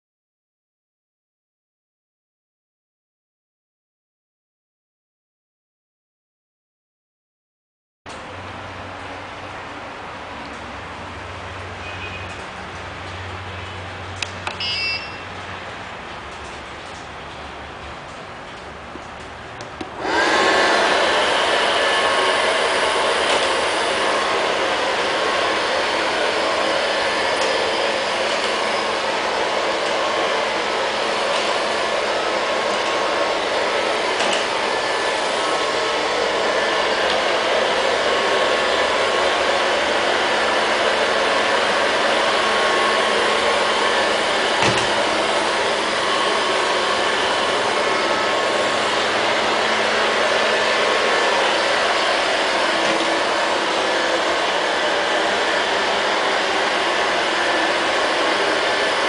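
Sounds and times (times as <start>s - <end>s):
robot vacuum running: 19.9s - 59.0s.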